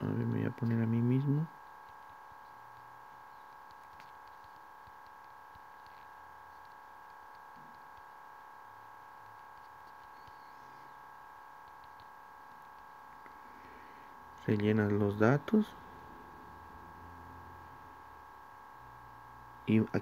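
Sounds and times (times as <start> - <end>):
faint electrical hum: 0.0 - 20.0
fingers tapping on touchscreen: 1.8 - 11.0, 11.6 - 13.3.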